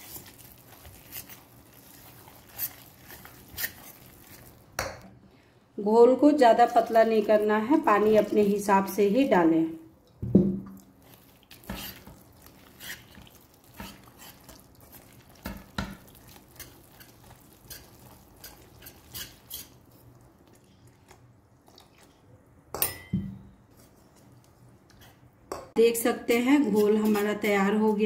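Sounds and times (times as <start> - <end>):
whisk stirring thick batter: 0.0 - 4.6, 11.0 - 21.3.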